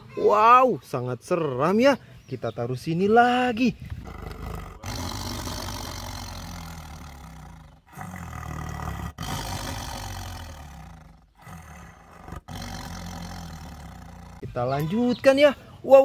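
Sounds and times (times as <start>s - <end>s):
tiger roaring: 4.0s - 14.4s.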